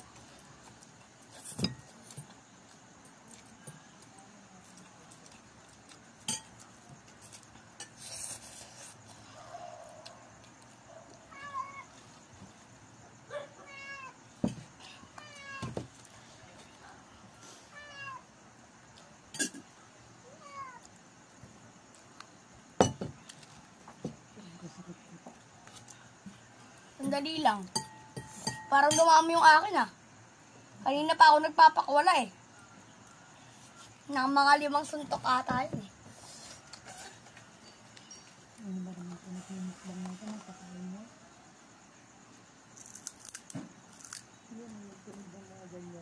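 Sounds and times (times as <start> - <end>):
cat meowing: 11.3 - 12.0, 13.4 - 14.2, 15.2 - 15.8, 17.7 - 18.3, 20.2 - 20.9.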